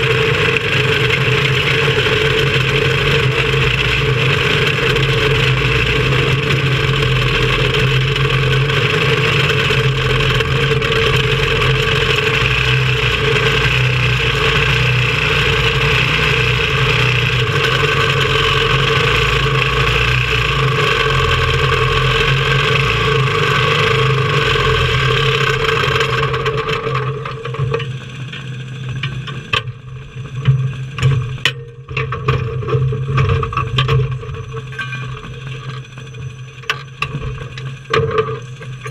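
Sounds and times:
race car engine running: 0.0s - 38.9s
clicks and knocks of rolling car: 25.3s - 38.9s.

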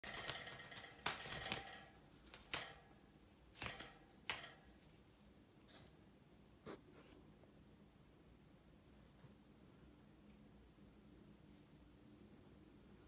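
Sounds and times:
bird wings flapping: 0.0s - 2.8s, 3.6s - 4.4s
bird moving in wire cage: 0.0s - 3.0s, 3.6s - 4.8s.

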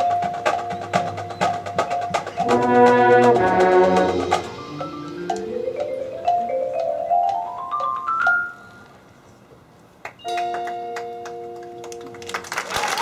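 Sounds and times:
marimba and xylophone playing: 0.0s - 8.8s, 10.2s - 12.0s
audience applause: 11.8s - 13.0s.

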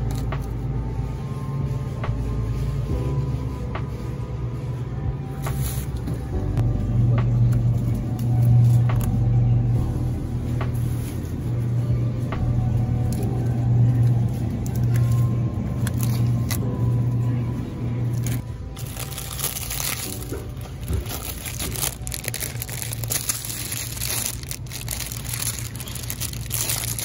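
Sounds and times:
low hum: 0.0s - 27.0s
plastic packaging crinkling: 14.4s - 16.6s, 18.1s - 27.0s.

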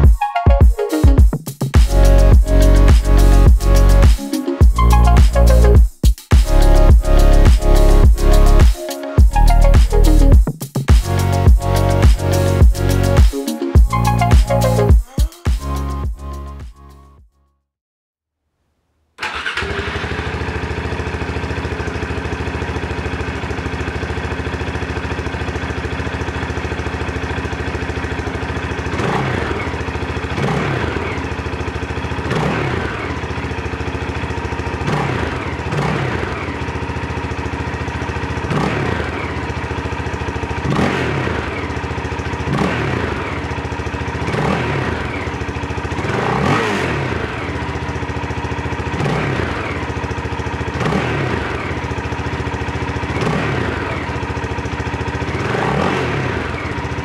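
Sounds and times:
engine revving: 1.8s - 4.1s, 6.4s - 8.7s, 11.0s - 13.2s, 19.2s - 22.4s, 28.7s - 33.8s, 34.7s - 57.0s
motorcycle engine idling: 19.2s - 57.0s.

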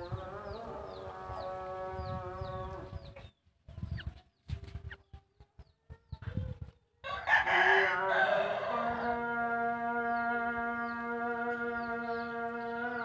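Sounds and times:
background music with held notes: 8.7s - 13.0s.

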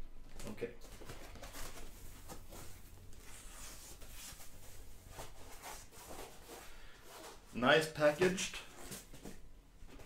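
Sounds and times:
soft scuffs: 1.0s - 7.6s.

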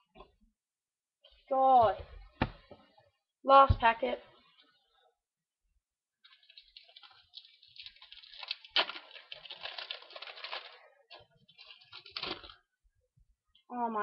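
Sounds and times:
foil packet crinkling: 6.2s - 12.7s.

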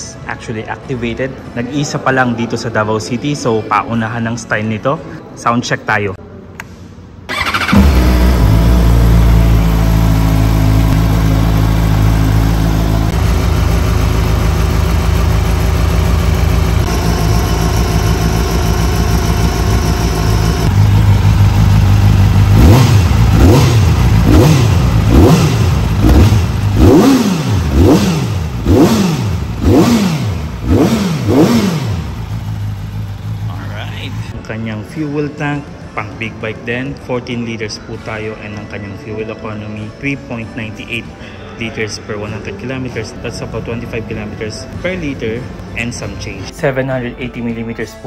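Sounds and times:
engine revving blips: 7.3s - 33.6s
motorcycle engine starting and idling: 7.3s - 34.3s.

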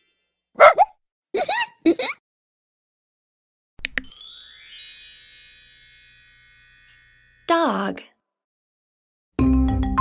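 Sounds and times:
shimmering chime glissando: 4.0s - 7.5s.

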